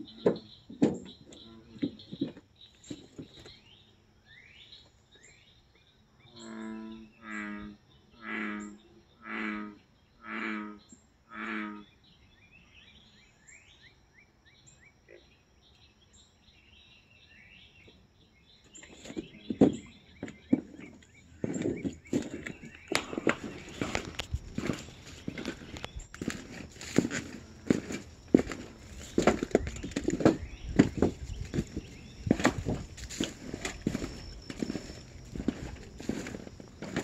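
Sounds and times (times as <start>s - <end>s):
small birds chirping: 0.0s - 13.9s, 14.5s - 37.0s
sharp footsteps: 19.0s - 37.0s.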